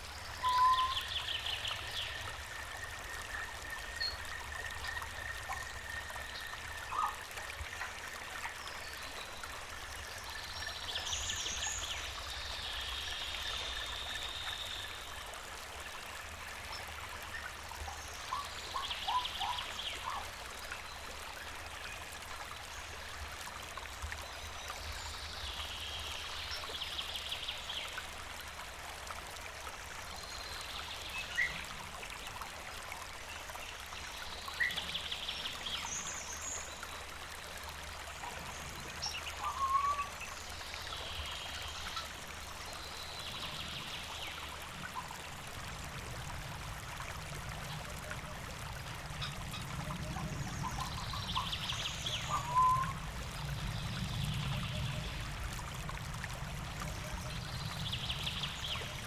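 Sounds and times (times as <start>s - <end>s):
stream flowing: 0.0s - 59.0s
bird trilling call: 0.4s - 1.0s.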